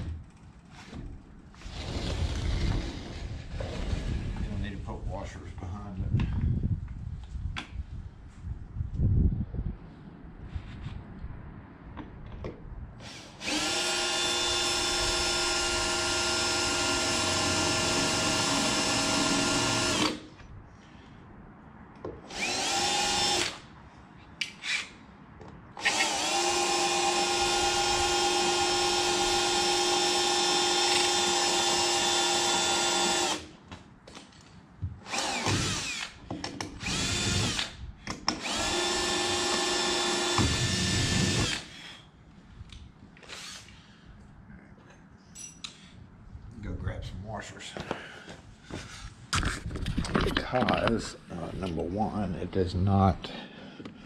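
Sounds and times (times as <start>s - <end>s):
cordless drill whining: 13.0s - 20.3s, 22.3s - 23.7s, 25.8s - 33.5s, 35.0s - 41.9s, 43.2s - 43.8s.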